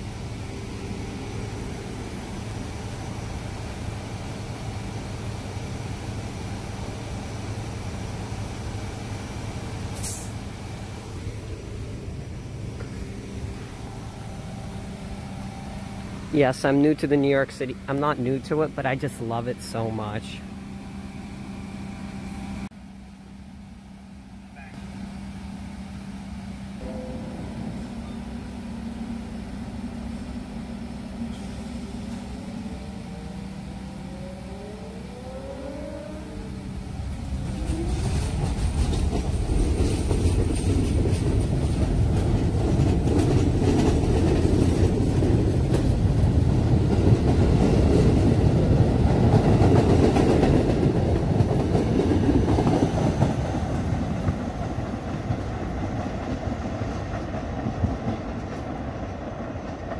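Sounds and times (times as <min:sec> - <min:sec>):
train motor whine: 0:00.0 - 0:57.2
train wheels rumbling and clacking: 0:24.2 - 0:59.9.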